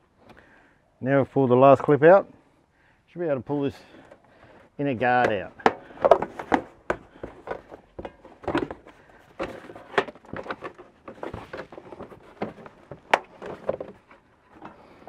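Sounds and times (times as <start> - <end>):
plastic scraping and rubbing: 5.0 - 15.0
plastic clicks and knocks: 5.2 - 15.0.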